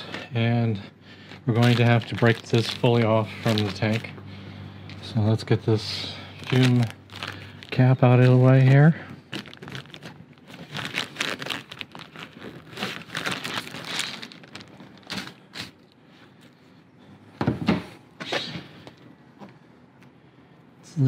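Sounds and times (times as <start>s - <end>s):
plastic bag crinkling: 1.2s - 4.1s, 6.1s - 15.9s.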